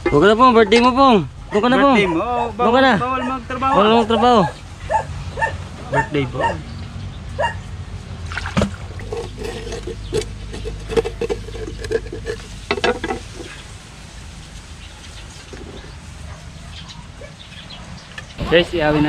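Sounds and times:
clicks taps and scraping: 0:08.6 - 0:13.6.

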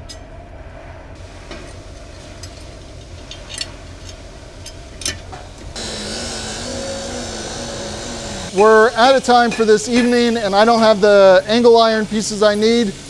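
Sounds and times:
steady low hum: 0:00.4 - 0:09.0
loud steady hiss: 0:05.6 - 0:13.0.

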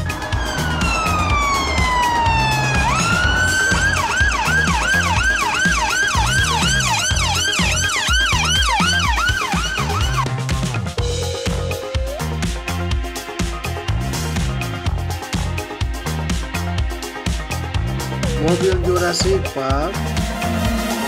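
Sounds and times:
ambulance siren wailing and yelping: 0:00.0 - 0:10.5, 0:18.2 - 0:19.2.

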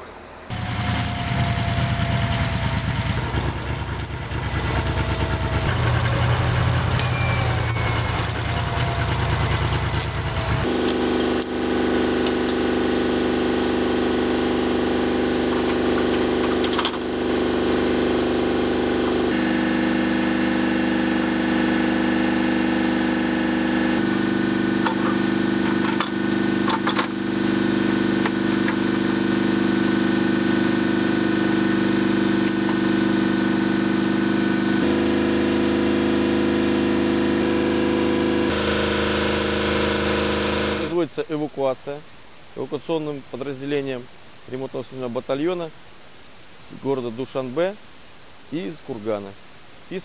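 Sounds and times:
engine idling: 0:00.5 - 0:20.0.

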